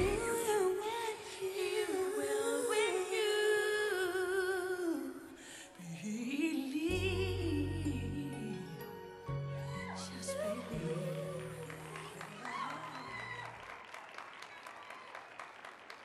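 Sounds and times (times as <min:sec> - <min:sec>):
deep bass: 0:00.0 - 0:00.3, 0:06.9 - 0:08.5
woman singing slow song: 0:00.0 - 0:09.0, 0:09.6 - 0:13.4.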